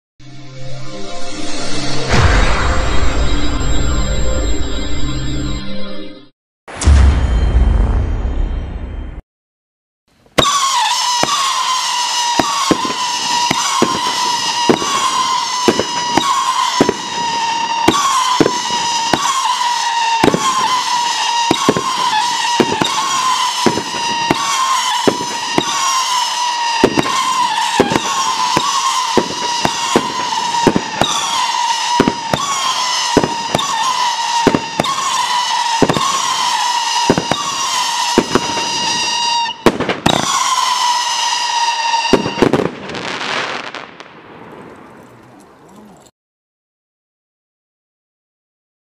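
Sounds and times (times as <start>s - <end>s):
fireworks howling whistle: 1.3s - 5.7s, 10.3s - 45.2s
firework bangs: 10.3s - 45.6s.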